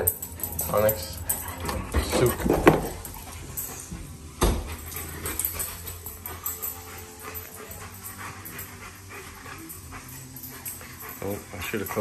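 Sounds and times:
dog panting: 0.0s - 12.0s
dog sniffing: 4.7s - 12.0s.

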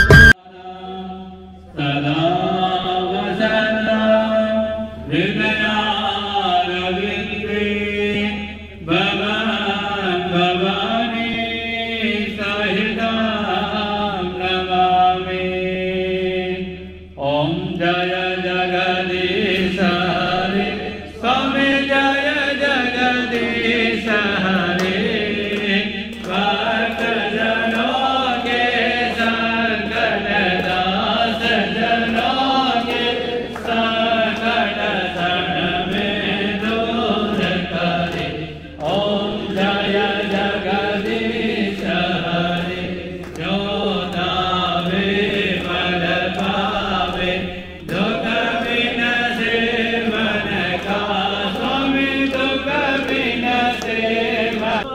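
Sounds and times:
group devotional chanting: 0.0s - 54.9s.

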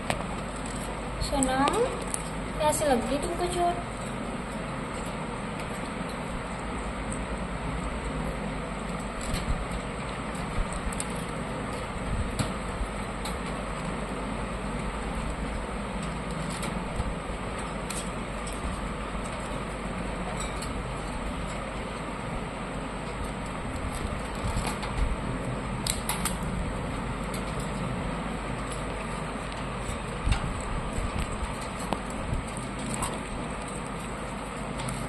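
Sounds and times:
steady background noise: 0.0s - 35.0s.

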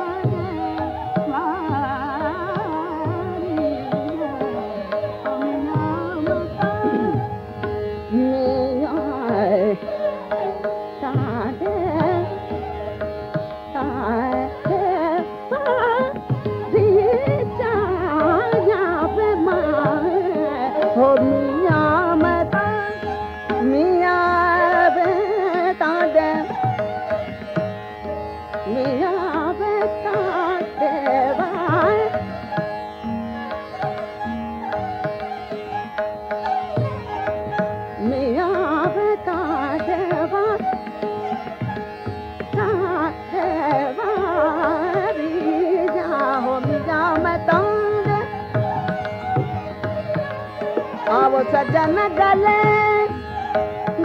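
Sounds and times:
sarangi melody: 0.0s - 54.0s
tabla: 0.0s - 54.0s
woman singing ornamented phrases: 8.1s - 10.3s, 11.0s - 12.3s, 13.8s - 26.5s, 42.6s - 48.4s, 51.0s - 53.2s.

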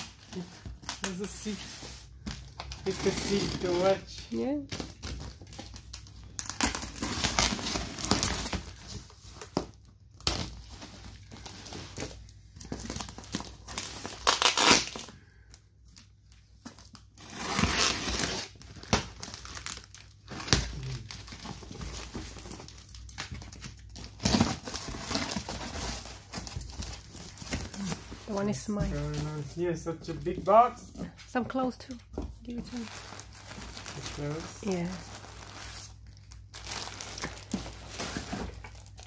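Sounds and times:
tape tearing: 6.4s - 9.6s, 13.2s - 15.1s, 17.2s - 28.1s
knife slitting packing tape: 14.2s - 15.0s
cardboard flaps crinkling: 36.5s - 39.0s.

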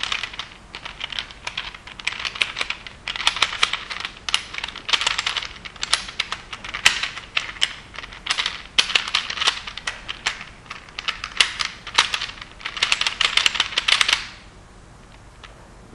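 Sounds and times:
puzzle cube clicking as turned: 0.0s - 14.4s.

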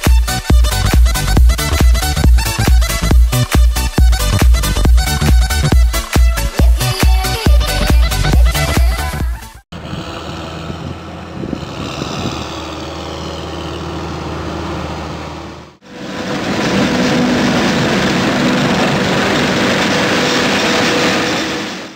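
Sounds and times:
tractor engine humming: 0.0s - 21.7s
forage harvester chopping with whine: 9.7s - 21.9s.

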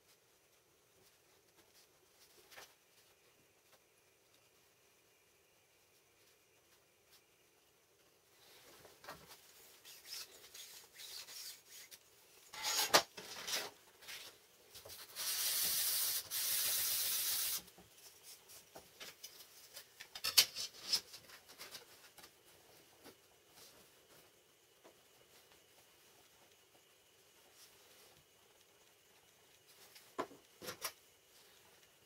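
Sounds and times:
wood block sanding on sandpaper: 15.0s - 17.6s.

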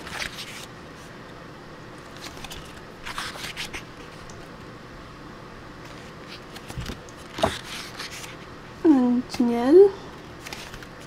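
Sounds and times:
paper pages rustling: 0.0s - 1.1s, 2.0s - 4.5s, 5.8s - 8.5s, 10.4s - 11.0s.

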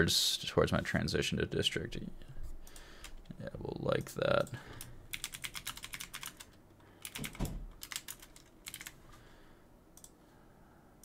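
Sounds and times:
typing on computer keyboard: 5.1s - 9.0s.

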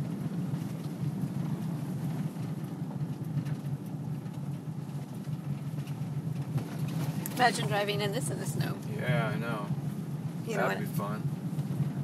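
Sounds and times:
car engine hum: 0.0s - 12.0s
tyre and road noise: 0.0s - 12.0s.

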